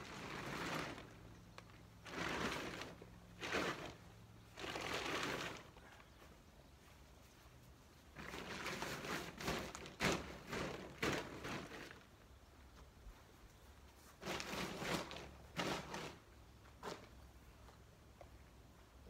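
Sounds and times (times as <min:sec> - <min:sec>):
tent fabric rustling and crumpling: 0:00.0 - 0:06.0, 0:07.9 - 0:12.1, 0:13.9 - 0:17.1.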